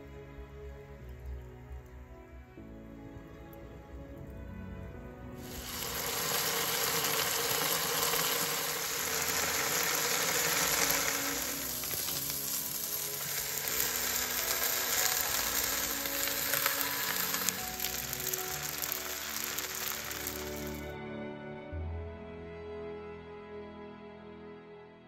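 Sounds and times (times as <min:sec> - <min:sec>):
food sizzling in a wok: 0:05.4 - 0:20.9.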